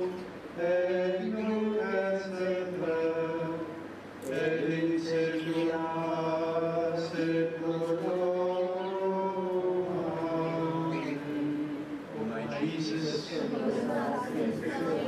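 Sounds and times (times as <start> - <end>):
congregation singing a hymn: 0.0 - 15.0.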